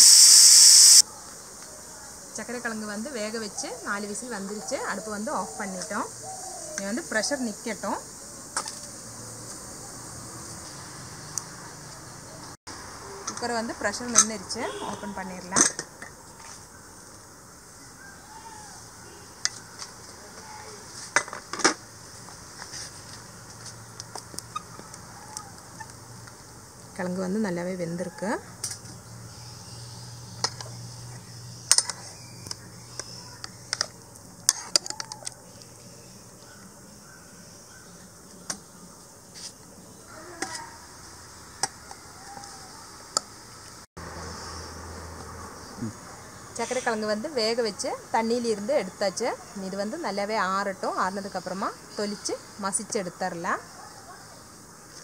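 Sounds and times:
faint high hiss: 0.0 - 3.3.

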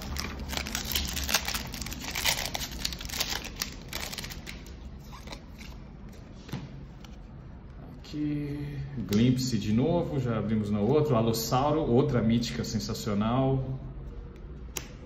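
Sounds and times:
foil wrapper tearing and crinkling: 0.0 - 5.4.

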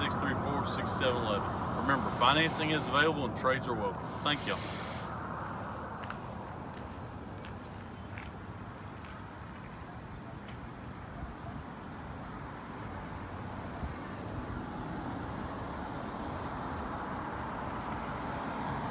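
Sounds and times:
steady rushing noise: 0.0 - 7.2.

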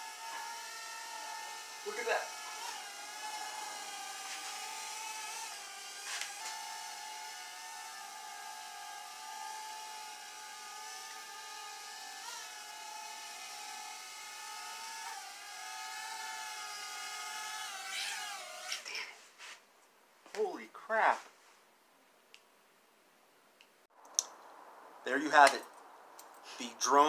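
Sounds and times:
toy drone propellers whining: 0.0 - 19.1.

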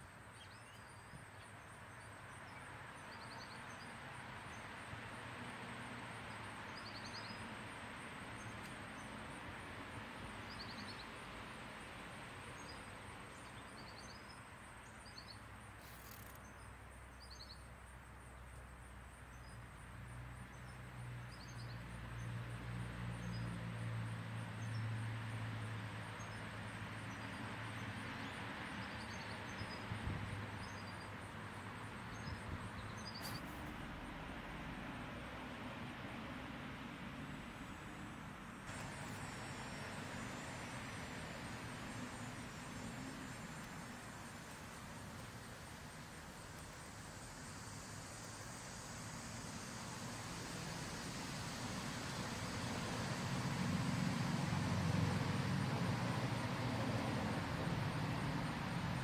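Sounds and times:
background hiss: 0.0 - 59.0
low engine hum: 20.2 - 59.0
faint high whine: 37.0 - 59.0.

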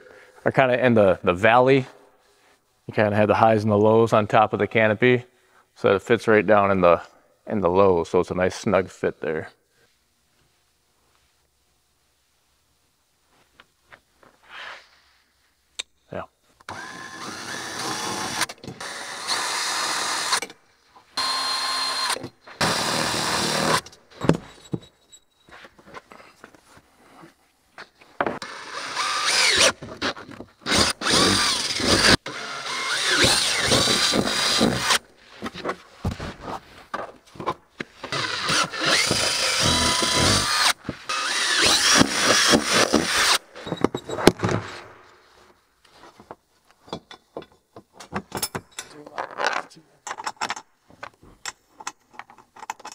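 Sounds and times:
cordless drill drilling plastic: 16.7 - 20.5, 21.2 - 23.9, 28.4 - 35.0, 38.1 - 43.4.

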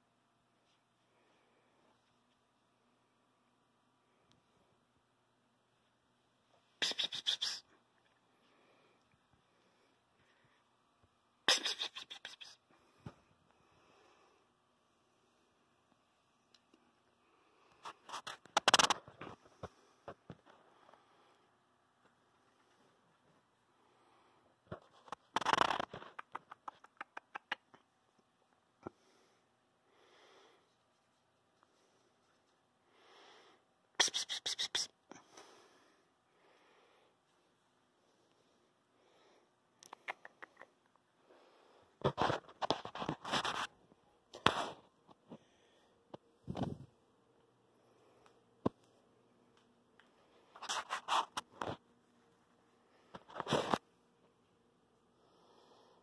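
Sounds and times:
scratchy rustling and scraping: 17.8 - 19.7, 24.7 - 26.7, 42.0 - 43.8, 50.4 - 51.8, 53.1 - 53.8.

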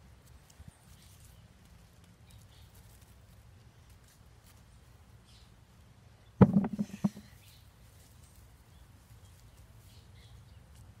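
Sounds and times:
knocks and rustling near microphone: 6.4 - 7.3.

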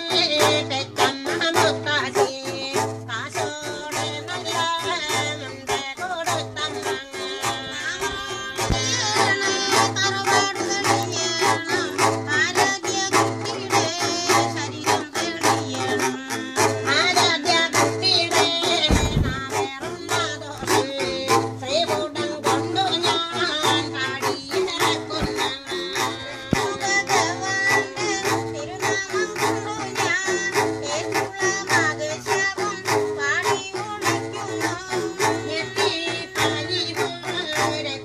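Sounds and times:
woman singing: 0.0 - 38.0
plucked string pot twanging: 17.0 - 21.6, 22.5 - 30.5.

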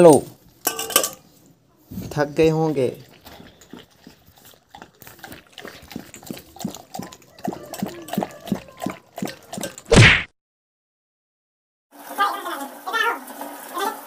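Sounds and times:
dog lapping water from metal bowl: 2.2 - 9.9.

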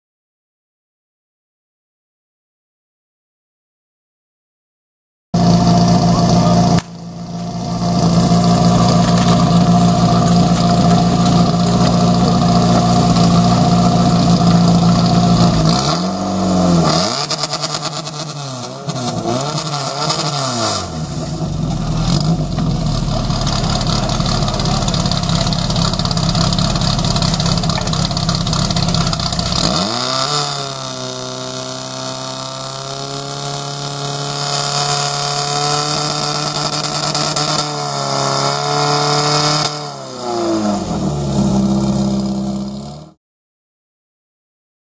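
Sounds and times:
pump engine running hard: 5.4 - 19.2, 20.9 - 33.0.

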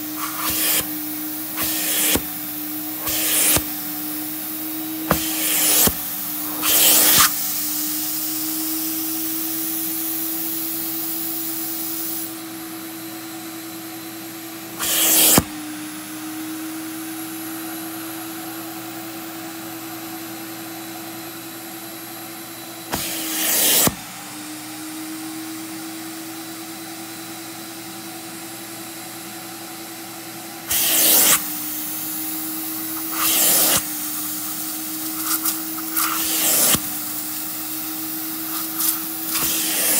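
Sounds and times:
vacuum motor humming: 0.0 - 39.9
loud hissing rushes: 1.6 - 4.0, 4.9 - 7.4.

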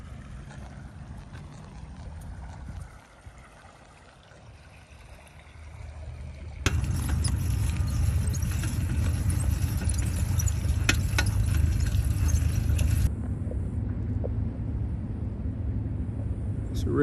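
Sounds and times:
bicycle tyres rumbling on gravel: 0.0 - 4.2, 4.8 - 13.1
low rumble: 4.7 - 16.8
sharp rattles: 6.5 - 13.1.

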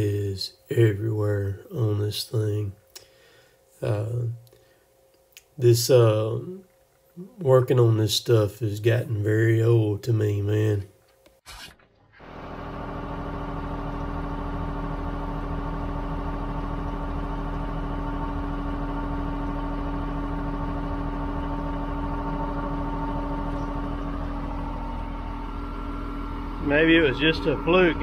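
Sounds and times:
diesel engine idling: 12.2 - 28.0.

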